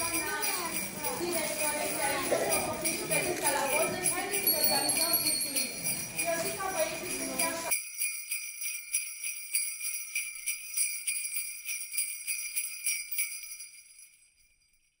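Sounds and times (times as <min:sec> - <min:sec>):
jingle bells shaken: 0:00.0 - 0:15.0.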